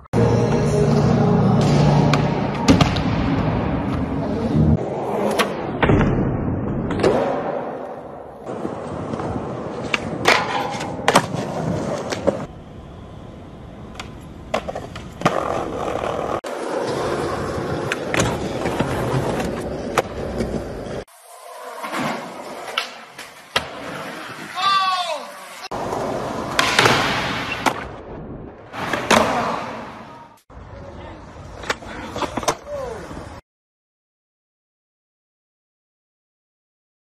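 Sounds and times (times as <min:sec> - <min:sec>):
skateboard wheels rolling on concrete: 0:06.6 - 0:33.4.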